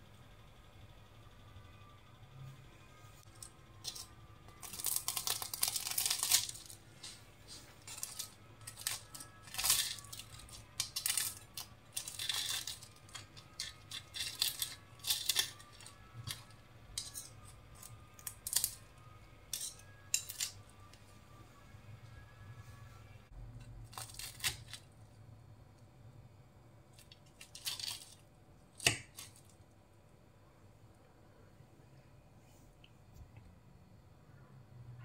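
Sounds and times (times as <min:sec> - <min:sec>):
crisp pastry crackling and crunching: 0:03.2 - 0:21.0, 0:23.5 - 0:25.0, 0:26.9 - 0:29.7.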